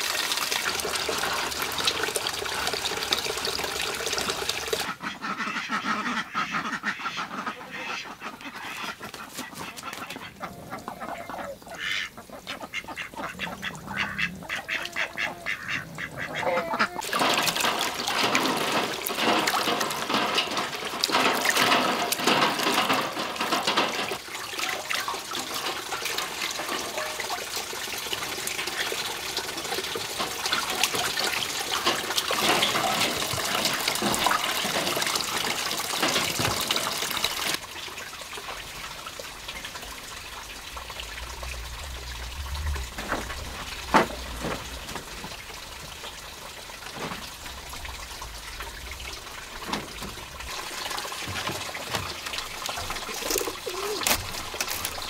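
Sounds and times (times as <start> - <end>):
water splashing: 0.0 - 55.0
ducks quacking: 4.8 - 17.3.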